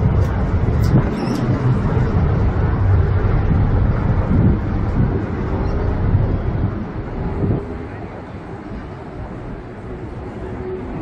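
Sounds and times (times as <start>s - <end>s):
city traffic rumble: 0.0s - 11.0s.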